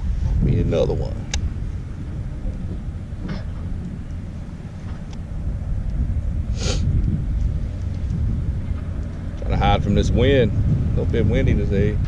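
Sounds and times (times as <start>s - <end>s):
wind buffeting microphone: 0.0s - 12.0s
short rushing hiss: 6.5s - 6.9s.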